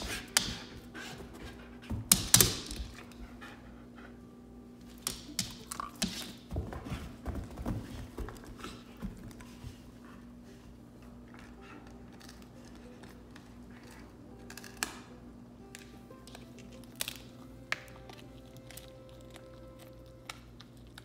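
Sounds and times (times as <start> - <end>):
dog claws clicking on floor: 1.9 - 3.2, 4.9 - 9.6
dog thumping on floor: 5.0 - 9.8.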